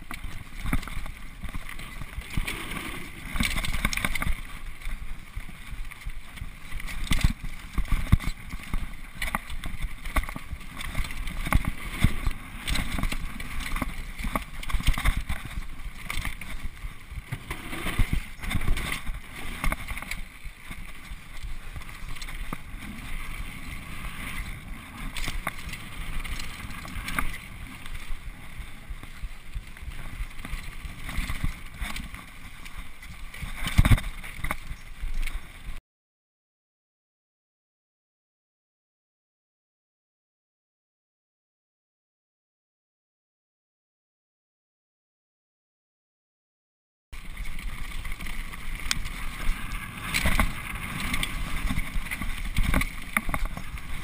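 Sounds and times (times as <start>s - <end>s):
bike rattles and knocks: 0.0s - 35.8s, 47.2s - 54.0s
rush of air and tyres: 0.0s - 35.8s, 47.2s - 54.0s.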